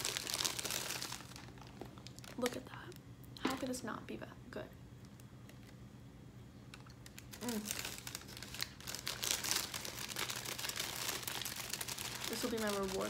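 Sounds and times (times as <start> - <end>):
paper bag crinkling: 0.0 - 2.5, 7.0 - 13.0.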